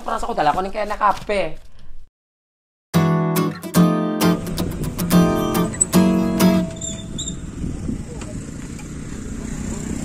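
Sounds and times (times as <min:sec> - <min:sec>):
strummed acoustic guitar: 0:03.0 - 0:07.2.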